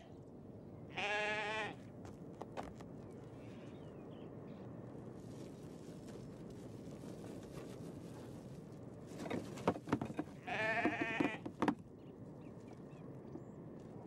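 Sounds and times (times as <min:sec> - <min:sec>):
calf bleating: 0:00.9 - 0:01.8, 0:10.4 - 0:11.4
plastic bucket clattering on metal rails: 0:09.2 - 0:11.8.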